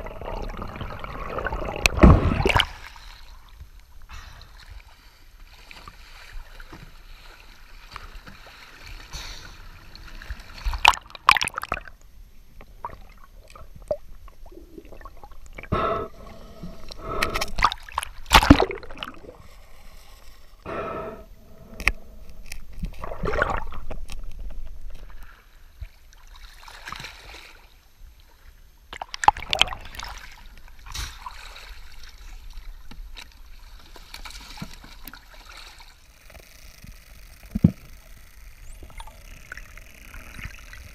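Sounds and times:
sea water sloshing and splashing: 0.0s - 12.0s, 12.7s - 20.6s, 21.4s - 40.9s.

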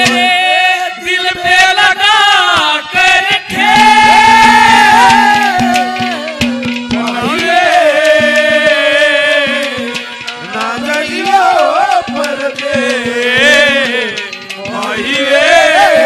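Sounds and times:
hand percussion taps: 9.5s - 15.2s.

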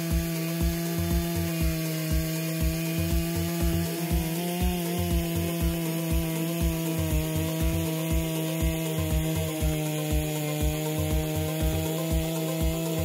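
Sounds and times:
background music with beat: 0.0s - 13.0s
chainsaw cutting log: 0.0s - 13.0s.

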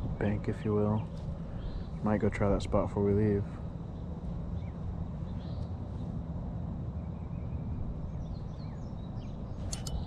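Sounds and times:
wind rumble on microphone: 0.0s - 10.0s
faint bird chirps: 0.9s - 2.1s, 3.9s - 6.1s, 6.9s - 10.0s.

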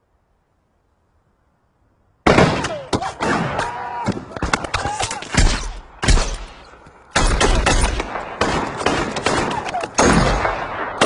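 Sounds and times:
rifle gunfire: 7.2s - 11.0s.

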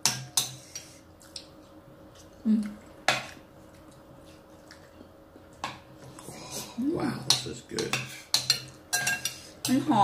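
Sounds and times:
spoons clinking and scraping plates: 7.2s - 10.0s.

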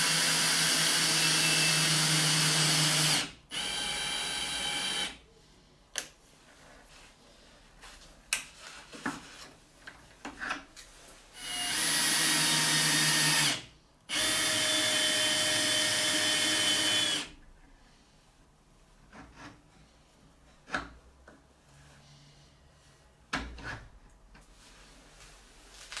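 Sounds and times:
cordless drill motor running: 0.0s - 5.1s, 11.4s - 17.3s.

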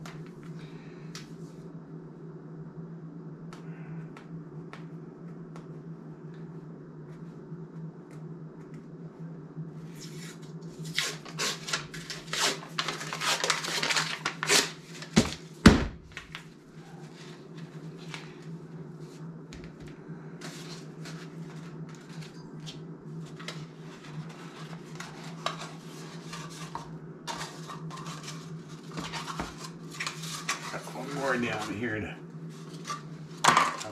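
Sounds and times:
steady low hum: 0.0s - 33.9s
paper wrapper crinkling and tearing: 10.8s - 15.5s.

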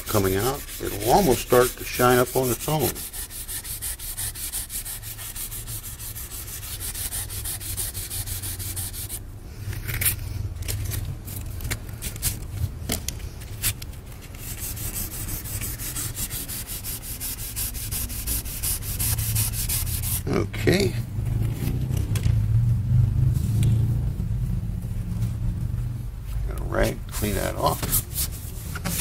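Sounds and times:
wet sandpaper rubbing by hand: 0.0s - 9.2s, 14.4s - 20.3s.

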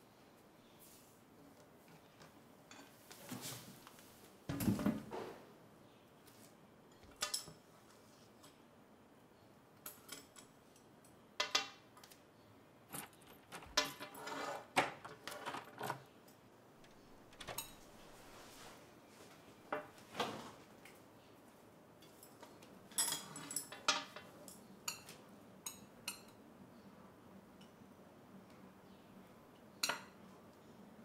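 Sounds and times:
chopsticks clinking on porcelain: 22.0s - 26.4s.

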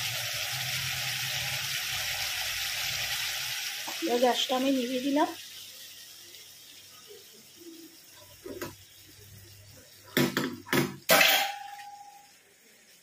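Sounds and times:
metal cookware clattering: 10.1s - 12.3s
metal clank with ringing tone: 11.1s - 12.3s.

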